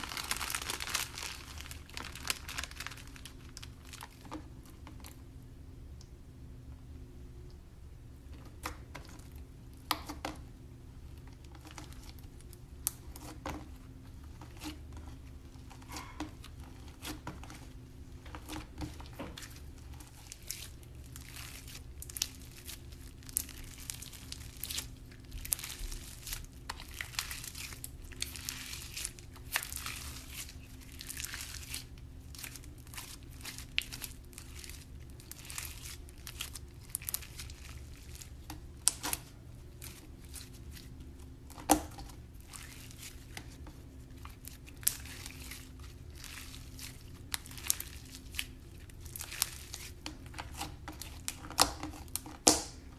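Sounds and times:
slime crackling and popping: 0.0 - 4.5, 15.6 - 52.9.

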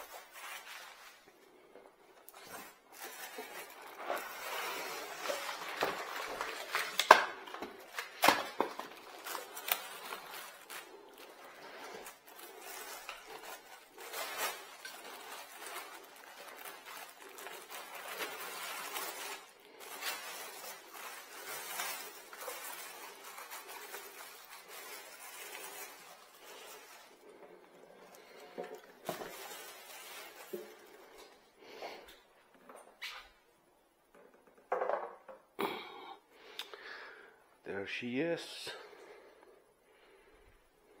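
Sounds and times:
packaging rustling: 0.0 - 32.3.

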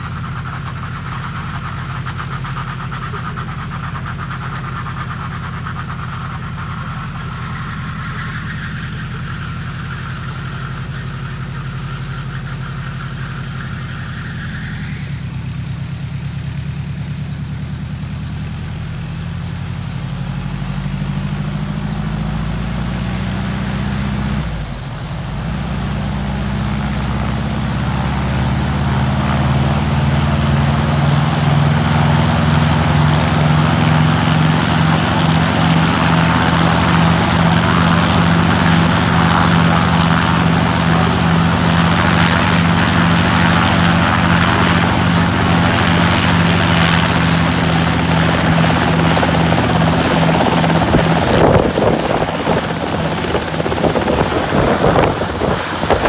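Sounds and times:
helicopter engine and rotor drone: 0.0 - 56.0.

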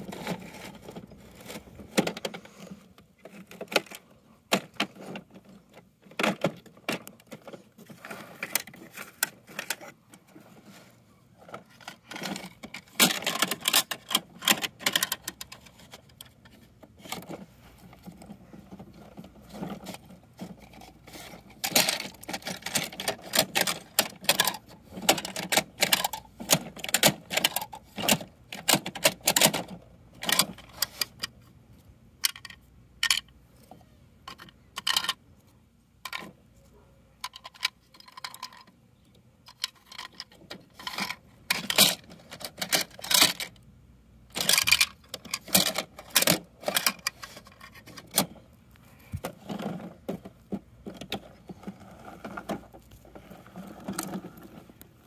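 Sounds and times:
plastic toy clicking and rattling: 0.0 - 10.0, 11.4 - 31.5, 32.2 - 33.3, 34.2 - 35.2, 36.0 - 36.4, 37.2 - 38.8, 39.4 - 43.6, 44.3 - 48.4.

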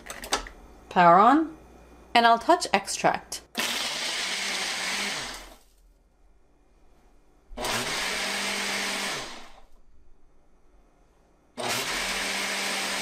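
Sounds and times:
blender motor pulsing: 3.6 - 5.6, 7.6 - 9.6, 11.6 - 13.0.

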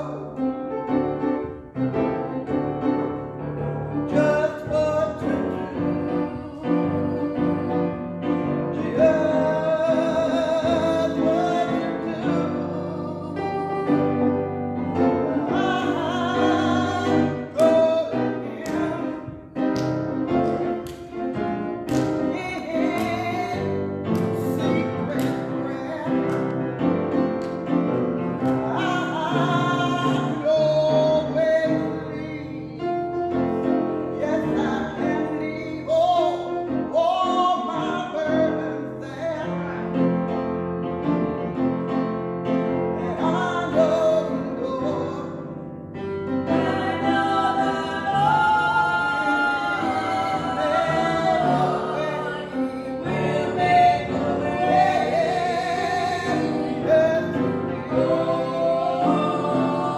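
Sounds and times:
keyboard accompaniment: 0.0 - 59.9
women singing with vibrato: 4.1 - 19.6, 28.5 - 32.8, 46.4 - 59.9.

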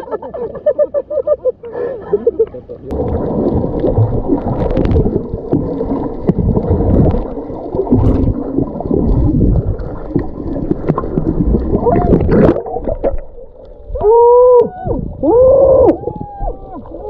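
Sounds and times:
muffled underwater rushing water: 1.8 - 17.0
small clicks underwater: 3.8 - 8.4, 9.1 - 13.8.

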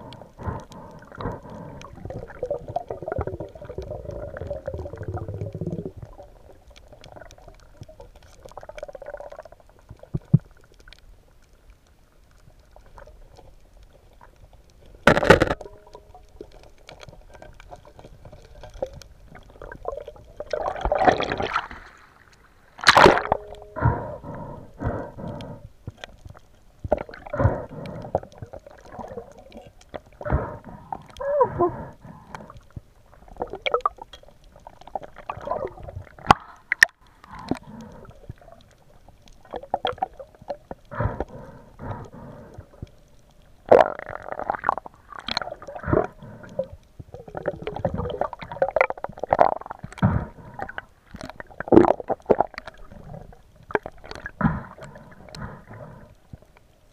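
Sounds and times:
water sloshing and gurgling: 0.0 - 56.9.

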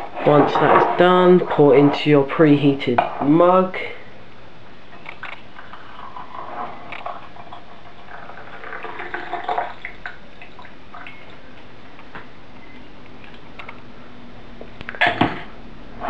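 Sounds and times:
coffee pouring into a mug: 5.6 - 11.4.

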